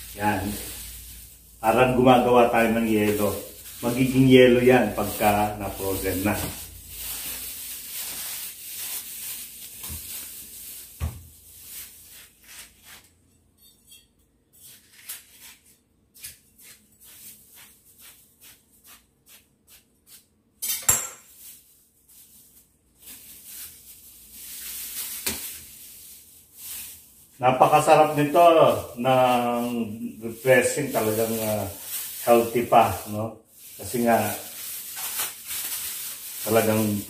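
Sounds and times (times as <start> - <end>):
plastic bag rustling: 0.0 - 13.0, 21.3 - 37.0.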